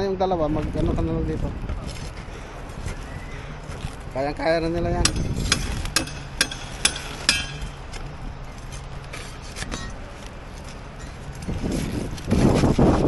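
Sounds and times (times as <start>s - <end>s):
metal hand tool striking: 5.0s - 7.8s.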